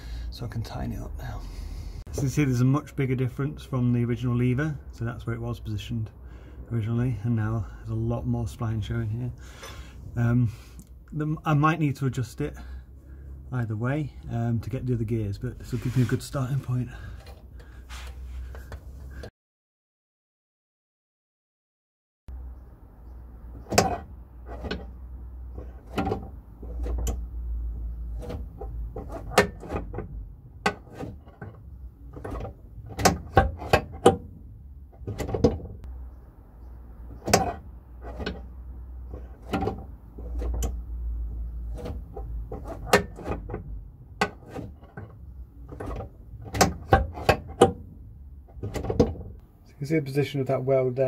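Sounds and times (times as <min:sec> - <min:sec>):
low steady rumble: 0:22.4 - 0:50.5
gear shifter metal clicks: 0:37.1 - 0:40.9, 0:41.5 - 0:47.8.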